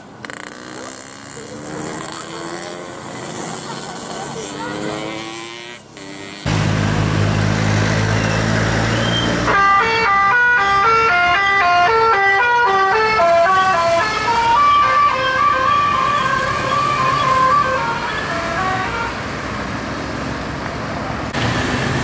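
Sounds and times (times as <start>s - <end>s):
minibus engine running: 0.0s - 10.9s.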